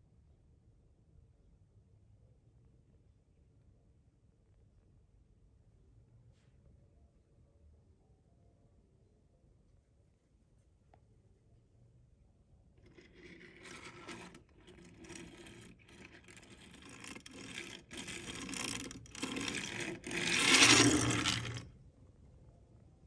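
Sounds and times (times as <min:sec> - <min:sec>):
toy truck wheels whirring on table: 0:12.8 - 0:21.7.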